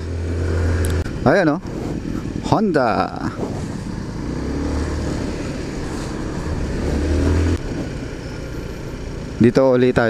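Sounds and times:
wind rush on microphone: 0.2 - 4.4.

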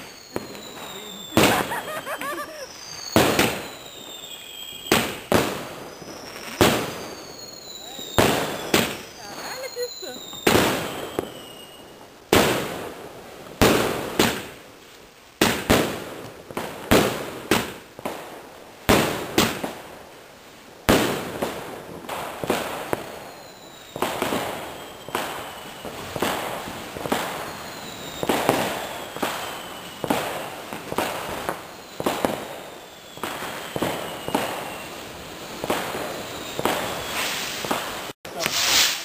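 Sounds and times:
thin falling whistle: 0.0 - 5.3, 5.9 - 11.9, 23.2 - 25.9, 27.2 - 30.5, 31.5 - 35.0, 35.8 - 37.7
fireworks bangs with echo: 0.0 - 14.7, 15.4 - 20.1, 20.8 - 39.0.

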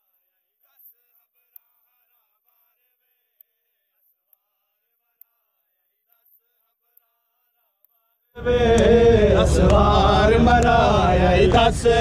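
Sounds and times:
soft ticks: 1.5 - 1.7
faint men chanting in unison: 8.4 - 12.0.

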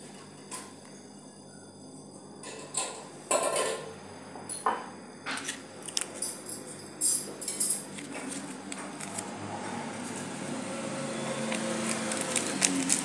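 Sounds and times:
paper sachet crinkling: 7.9 - 10.4, 11.5 - 13.0.

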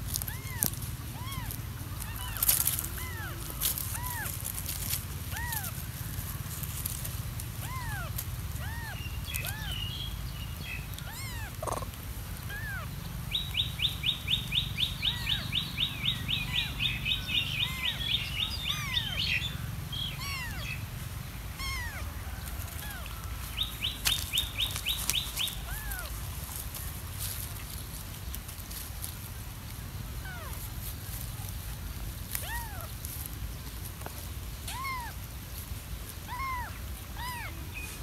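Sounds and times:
kitten mewing: 0.2 - 4.4.

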